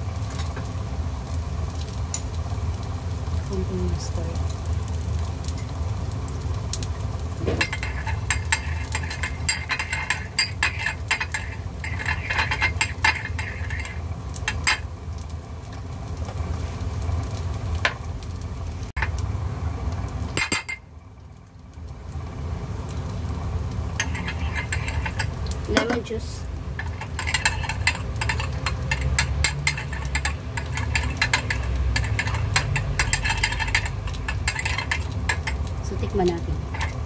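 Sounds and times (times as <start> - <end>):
steady low hum: 0.8 - 37.0
metal spoon clinking in ceramic bowl: 7.6 - 14.8, 20.4 - 20.8, 24.0 - 26.0, 26.8 - 35.6, 36.6 - 37.0.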